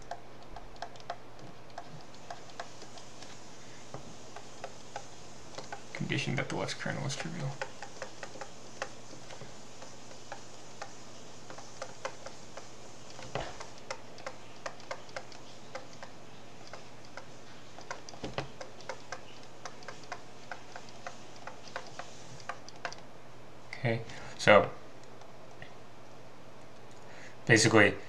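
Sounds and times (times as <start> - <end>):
stylus tapping on tablet: 0.0 - 6.1, 7.1 - 23.1
faint low hum: 0.0 - 28.0.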